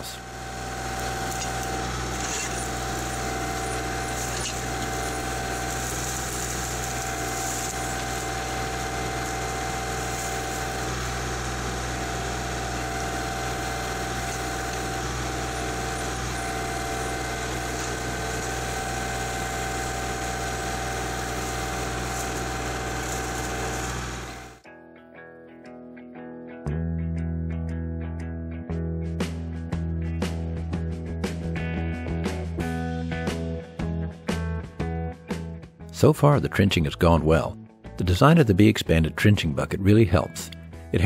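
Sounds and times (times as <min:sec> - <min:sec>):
backhoe digging: 0:00.0 - 0:24.6
diesel tractor engine running: 0:00.0 - 0:24.6.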